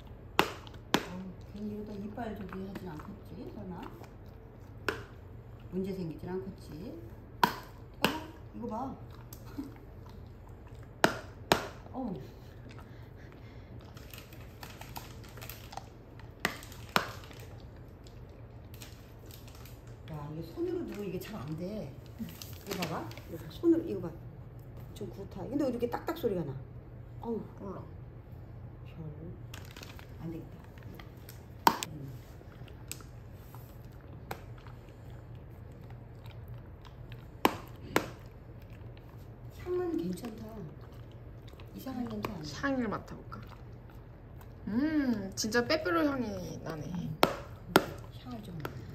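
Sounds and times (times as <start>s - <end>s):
dog crunching hard chew: 13.7s - 20.1s, 29.5s - 44.7s.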